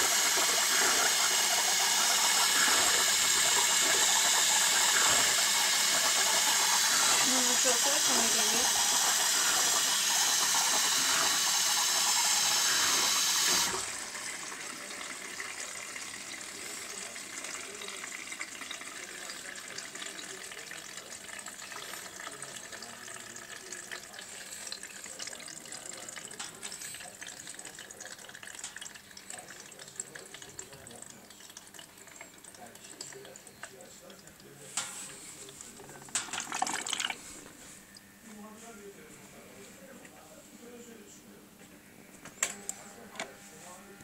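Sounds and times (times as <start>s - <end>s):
water trickling and dripping: 14.5s - 37.2s.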